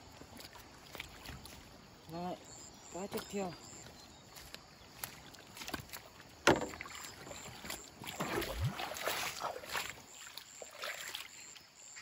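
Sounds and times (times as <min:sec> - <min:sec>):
water splashing and sloshing: 0:00.0 - 0:12.0
bamboo knocking on bamboo: 0:06.4 - 0:06.8.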